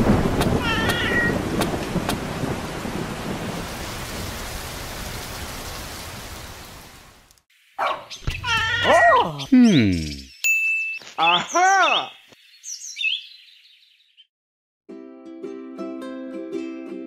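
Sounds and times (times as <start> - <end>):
rain hiss: 0.0 - 7.8
cat-like meows: 0.6 - 1.4, 8.2 - 9.5.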